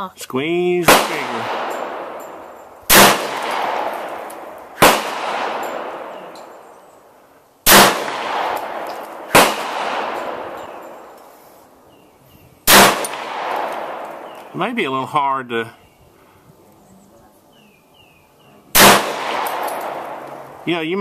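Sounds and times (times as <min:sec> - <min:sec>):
pistol shots with echo: 0:00.8 - 0:07.0, 0:07.6 - 0:11.2, 0:12.6 - 0:14.6, 0:18.7 - 0:20.6.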